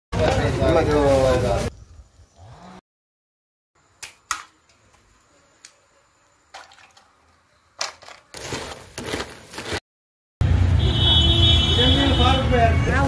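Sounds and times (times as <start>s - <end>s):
wet crunching and scraping: 7.9s - 9.8s.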